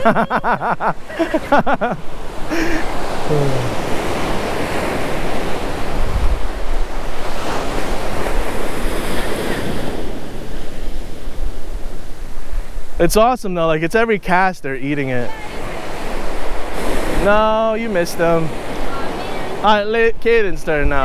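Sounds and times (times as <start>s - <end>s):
ocean surf breaking: 0.0s - 13.9s, 14.9s - 21.0s
wind on microphone: 3.2s - 13.0s
brief voice-like sound: 3.3s - 3.8s.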